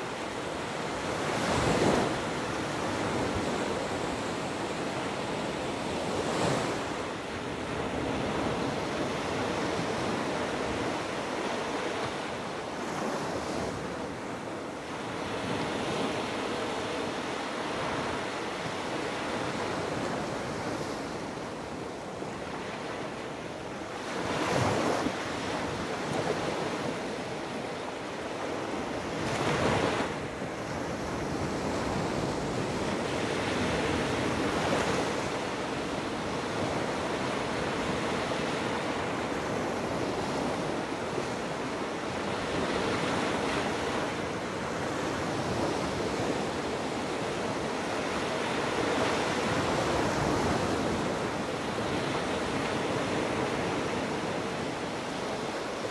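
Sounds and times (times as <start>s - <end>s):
waves breaking on a beach: 0.0s - 55.9s.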